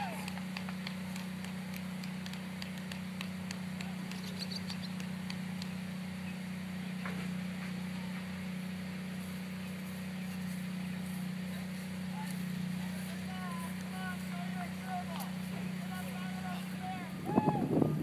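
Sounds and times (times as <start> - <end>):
steady low machine hum: 0.0 - 18.0
faint high chirps and clicks: 2.7 - 5.8.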